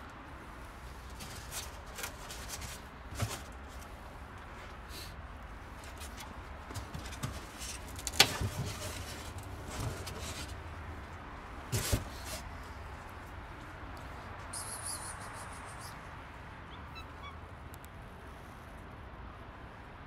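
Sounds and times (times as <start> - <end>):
handling knocks and rustles: 1.0 - 4.9, 5.5 - 14.3.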